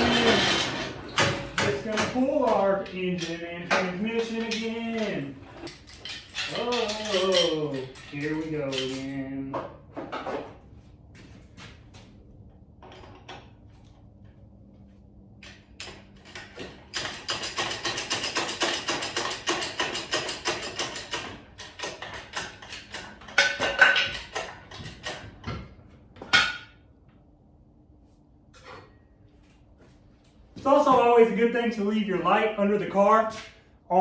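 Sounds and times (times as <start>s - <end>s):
loud metallic clanks: 0.0s - 9.1s
hand tools clicking: 0.0s - 9.2s.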